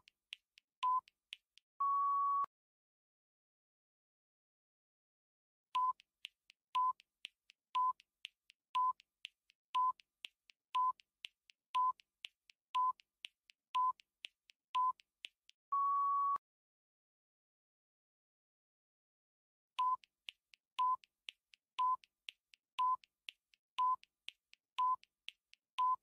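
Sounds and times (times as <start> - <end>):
faint ticks: 0.0 - 1.6, 5.8 - 15.6, 19.8 - 26.0
electronic timer beeps: 0.8 - 1.1, 5.8 - 6.1, 6.8 - 7.0, 7.8 - 8.0, 8.8 - 9.0, 9.8 - 10.0, 10.8 - 11.0, 11.8 - 12.0, 12.8 - 13.0, 13.8 - 14.0, 14.8 - 15.0, 19.8 - 20.1, 20.8 - 21.1, 21.8 - 22.1, 22.8 - 23.1, 23.8 - 24.0, 24.8 - 25.0, 25.8 - 26.0.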